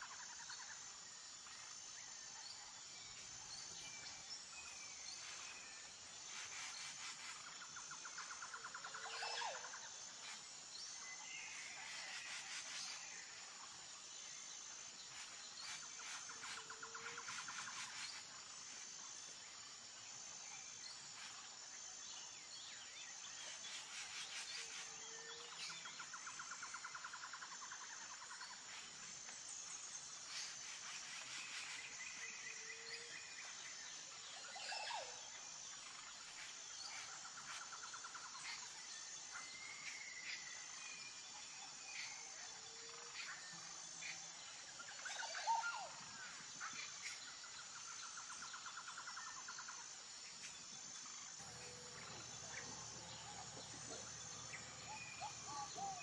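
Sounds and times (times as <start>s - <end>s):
bird chirps: 50.5s - 56.0s.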